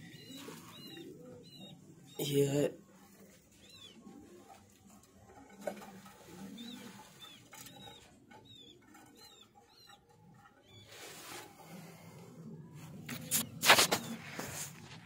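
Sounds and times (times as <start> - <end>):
young pigeons peeping: 0.0 - 15.0
loud rustle: 13.1 - 15.0.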